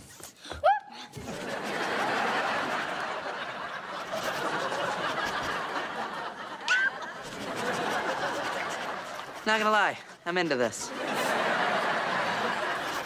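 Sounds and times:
studio audience laughing: 0:01.2 - 0:09.4, 0:10.8 - 0:13.0.

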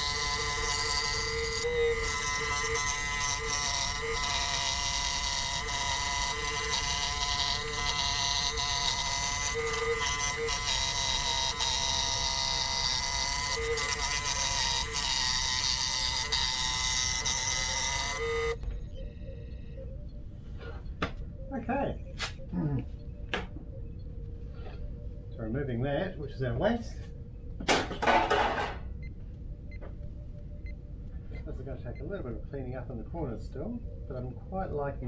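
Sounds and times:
scroll saw cutting wood: 0:00.0 - 0:18.6.

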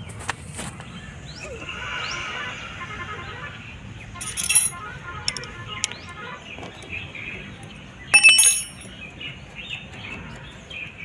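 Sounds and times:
faint birds chirping: 0:00.0 - 0:11.0
bell-like metal clink: 0:04.2 - 0:04.8, 0:08.2 - 0:08.9
metal parts clinking: 0:04.2 - 0:06.0, 0:08.1 - 0:09.0.

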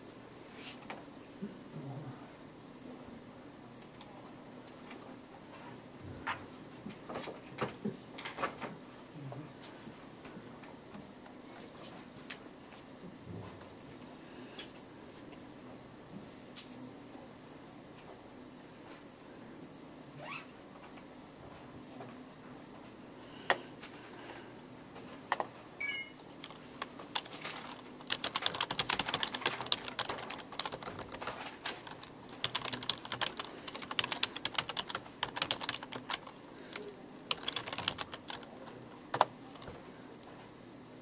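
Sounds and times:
typing on computer keyboard: 0:26.2 - 0:38.5.

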